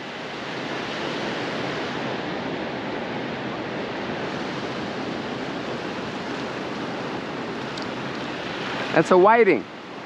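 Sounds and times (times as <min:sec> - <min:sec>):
ocean waves breaking: 0:00.0 - 0:10.0.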